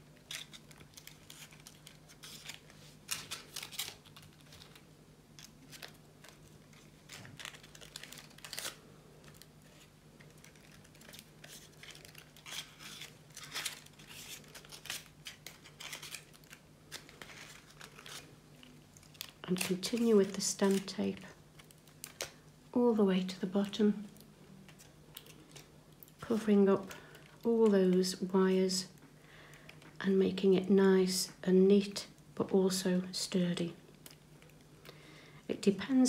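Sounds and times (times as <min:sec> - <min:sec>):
paper rustling and crinkling: 0:00.0 - 0:22.4.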